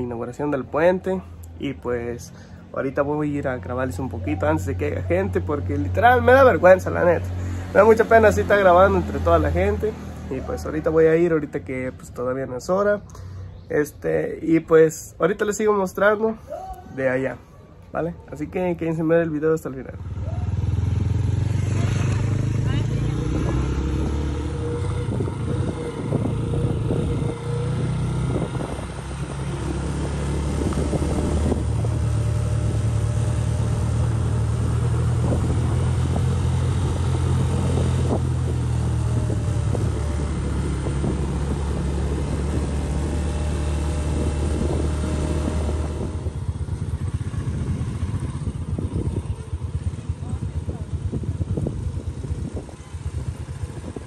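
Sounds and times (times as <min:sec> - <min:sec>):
small motorcycle engine running: 0:20.0 - 0:54.0
wind noise on microphone: 0:20.4 - 0:54.0.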